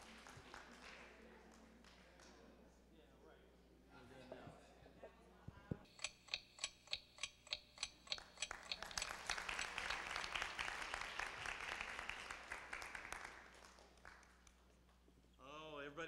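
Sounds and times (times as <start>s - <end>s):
audience applause: 0.0s - 1.1s, 8.5s - 14.3s
audience clapping in unison: 0.0s - 2.4s, 8.2s - 14.6s.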